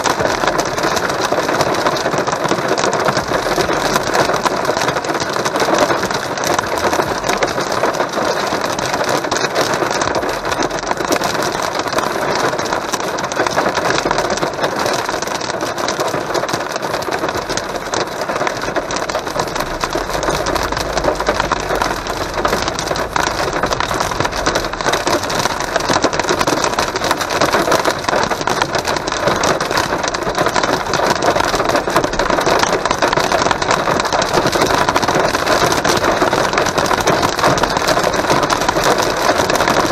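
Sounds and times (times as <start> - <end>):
heavy rain on car roof: 0.0 - 39.9
tyre noise on wet road: 0.0 - 39.9
car engine: 3.1 - 9.1, 17.2 - 29.3.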